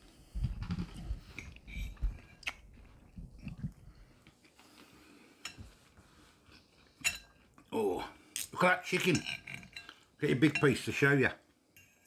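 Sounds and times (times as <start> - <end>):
person chewing food: 0.8 - 7.7.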